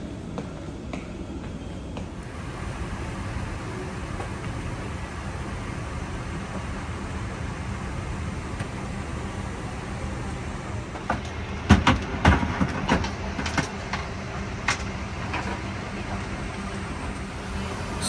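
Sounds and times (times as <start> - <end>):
cabin ventilation hum: 0.0 - 18.0
sharp knocks and clatter: 11.0 - 15.7.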